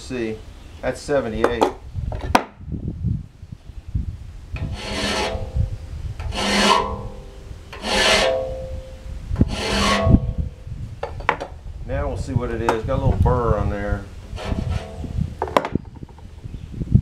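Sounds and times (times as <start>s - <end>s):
hand file rasping on saw blade: 4.6s - 5.6s, 6.2s - 8.5s, 9.4s - 10.4s, 14.3s - 15.0s
steel blade ringing: 6.5s - 9.1s.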